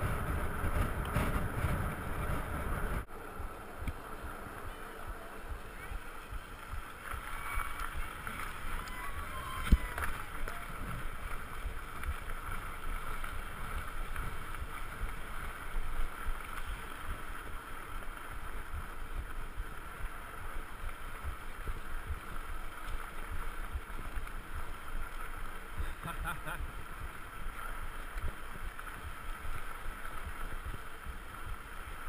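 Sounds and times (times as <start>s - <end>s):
low thumps from bumps: 0.0s - 4.8s
bike tyres rolling on dirt: 0.0s - 32.0s
wind noise: 0.0s - 32.0s.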